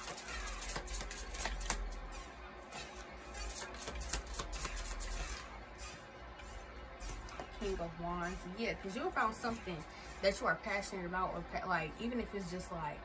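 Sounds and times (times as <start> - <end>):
cards being shuffled: 0.0 - 2.0, 3.4 - 5.5.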